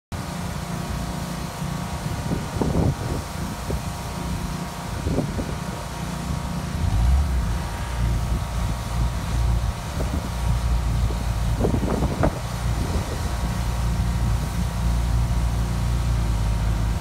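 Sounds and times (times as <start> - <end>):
engine running steadily: 0.1 - 17.0
wind buffeting microphone: 2.0 - 14.7.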